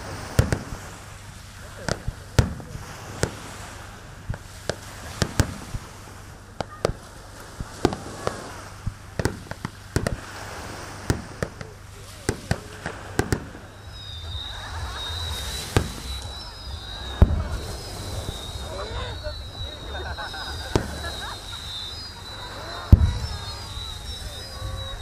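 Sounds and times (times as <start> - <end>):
firework shells bursting: 11.0 - 25.0.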